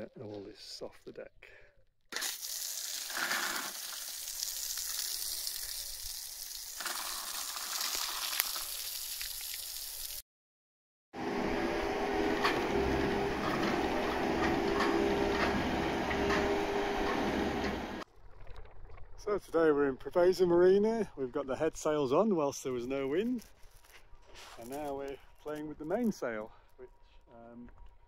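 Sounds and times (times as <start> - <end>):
hose water spraying on deck: 2.2 - 10.2
travel lift mechanical hum: 11.2 - 18.0.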